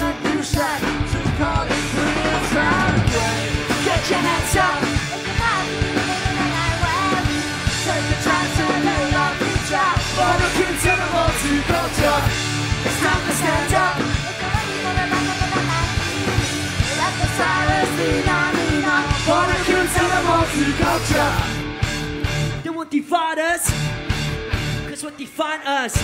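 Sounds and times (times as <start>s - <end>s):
punk band playing: 0.0s - 22.7s, 23.6s - 26.0s
woman singing and shouting: 3.9s - 10.0s, 13.2s - 19.2s.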